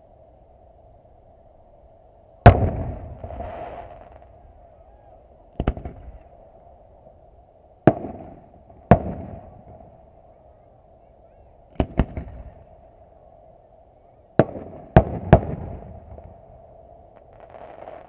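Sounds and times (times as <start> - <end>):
firework shells bursting: 2.4 - 6.6, 7.8 - 10.3, 11.7 - 12.7, 14.4 - 18.0.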